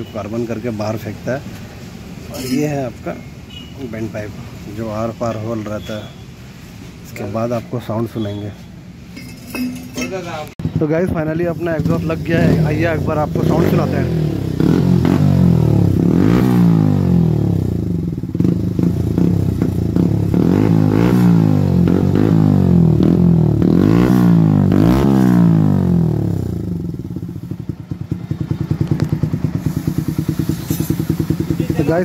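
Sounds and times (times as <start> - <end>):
motorcycle engine revving: 9.7 - 32.0
motorcycle engine idling: 26.2 - 32.0.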